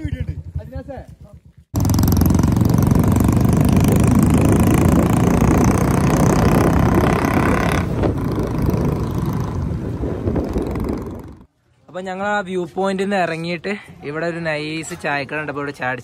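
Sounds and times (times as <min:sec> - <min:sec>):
motorcycle engine running: 0:00.0 - 0:11.5.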